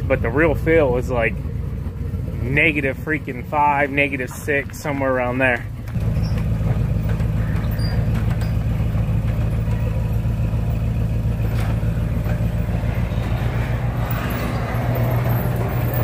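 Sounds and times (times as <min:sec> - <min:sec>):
truck engine idling: 0:00.0 - 0:16.0.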